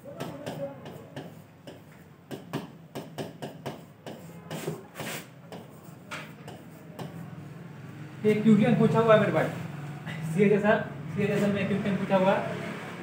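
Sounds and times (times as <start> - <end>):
pen scratching strokes: 0.4 - 2.0, 3.6 - 7.4.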